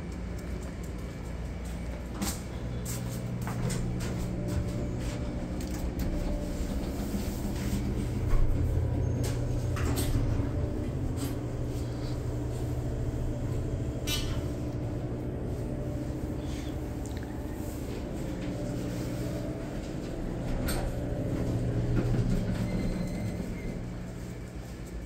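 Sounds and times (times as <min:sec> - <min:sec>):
elevator hum: 0:00.0 - 0:25.0.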